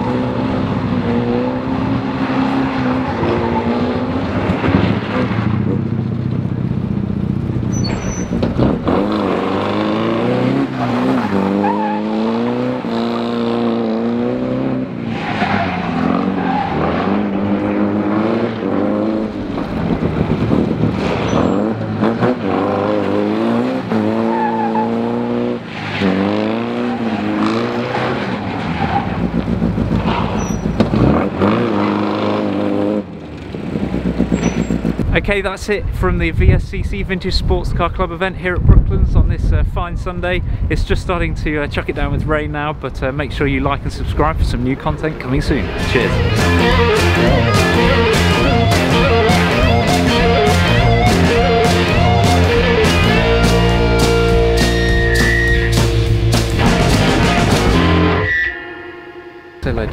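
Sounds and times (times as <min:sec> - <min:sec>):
sports car engine revving: 0:06.9 - 0:35.1, 0:45.4 - 0:58.3.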